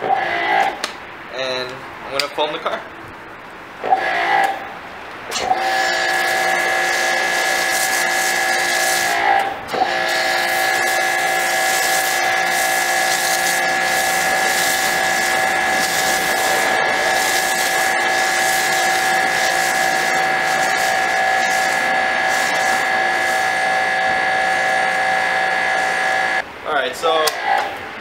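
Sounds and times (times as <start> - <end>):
pressure washer motor drone: 3.9 - 4.5, 5.3 - 26.4
hiss of spray: 5.4 - 25.1.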